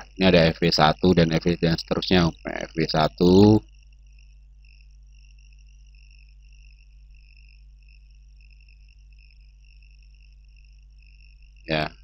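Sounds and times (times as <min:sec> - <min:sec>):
high-pitched trilling whine: 0:00.0 - 0:03.7
low steady hum: 0:00.0 - 0:12.0.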